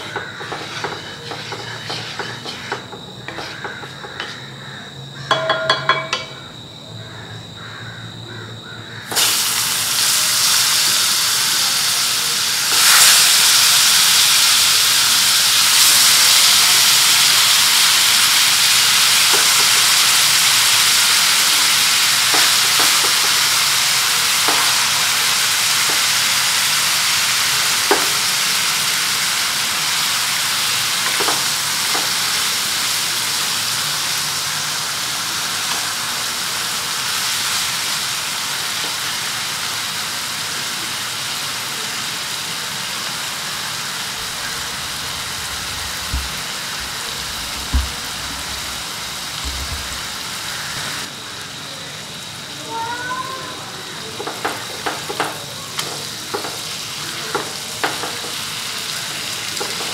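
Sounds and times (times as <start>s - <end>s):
chicken sizzling in a pan: 0.0s - 6.4s, 7.1s - 59.9s
wooden spatula clicking on pan: 54.2s - 56.6s.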